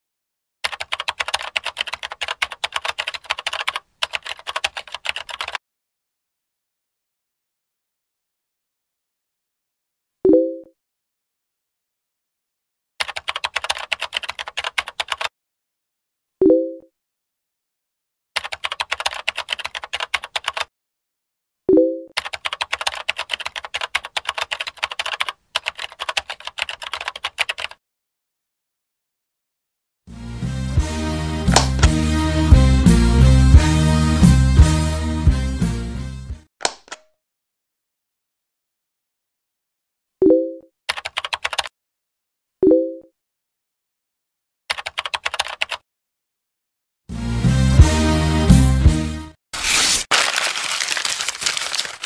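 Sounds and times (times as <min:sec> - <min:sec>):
fast keyboard typing: 0:00.6 - 0:05.6, 0:13.0 - 0:15.3, 0:18.4 - 0:20.7, 0:22.2 - 0:27.8, 0:40.9 - 0:41.7, 0:44.7 - 0:45.8, 0:49.7 - 0:52.0.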